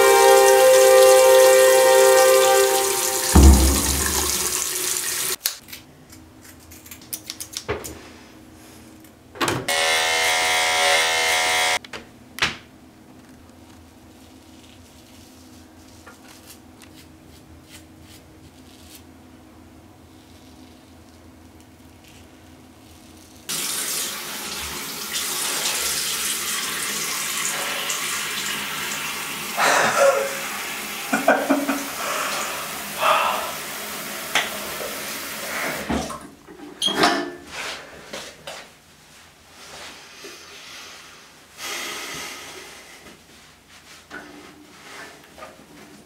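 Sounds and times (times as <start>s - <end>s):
tap water splashing in sink: 0.4s - 5.4s, 34.3s - 34.9s
knocks and clicks: 3.3s - 4.7s.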